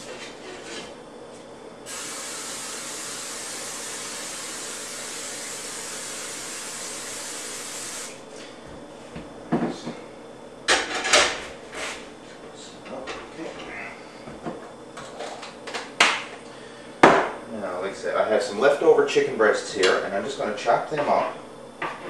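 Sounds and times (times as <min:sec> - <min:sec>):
cooking spray hissing: 0:01.8 - 0:08.2.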